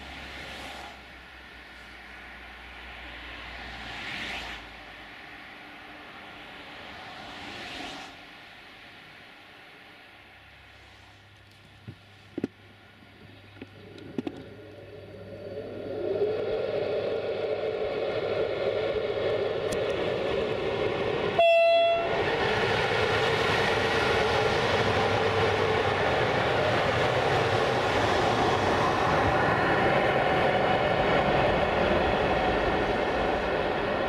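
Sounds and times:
train wheels passing: 0.0 - 9.2, 10.6 - 34.0
electric locomotive humming: 12.6 - 34.0
locomotive horn blast: 21.4 - 22.2.

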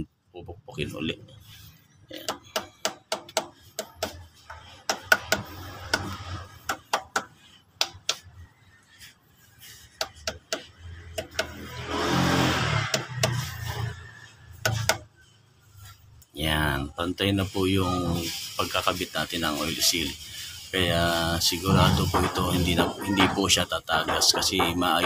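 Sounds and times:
hammer tapping metal: 2.2 - 8.2, 10.0 - 11.6.

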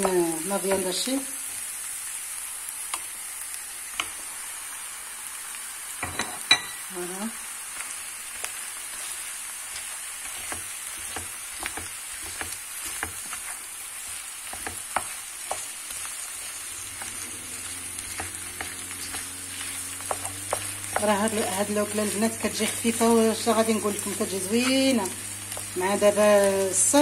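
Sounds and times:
meat sizzling in a pan: 0.0 - 27.0
wooden spoon scraping and tapping: 8.4 - 26.2.

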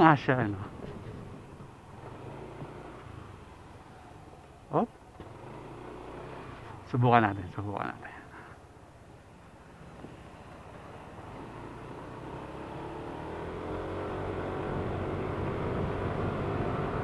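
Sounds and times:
scooter engine accelerating: 0.7 - 3.8, 5.1 - 7.5, 9.8 - 17.0.

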